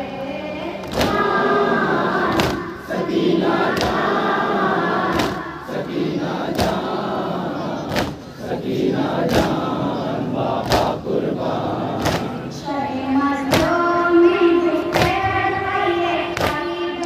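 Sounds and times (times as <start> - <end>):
boy chanting into microphone: 0.0 - 8.4, 11.7 - 17.0
crowd beating chests: 0.8 - 12.6, 13.4 - 14.1, 14.8 - 17.0
men singing along: 0.8 - 12.7, 13.4 - 14.1.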